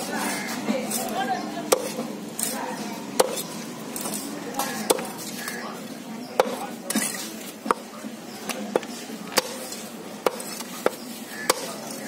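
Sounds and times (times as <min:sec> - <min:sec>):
knife chopping on wooden block: 0:10.2 - 0:11.8.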